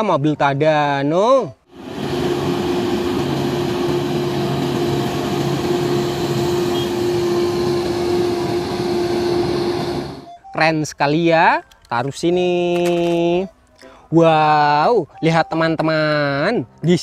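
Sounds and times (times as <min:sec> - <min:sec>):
diesel engine drone: 0:01.7 - 0:10.4
constant engine whine: 0:01.7 - 0:10.5.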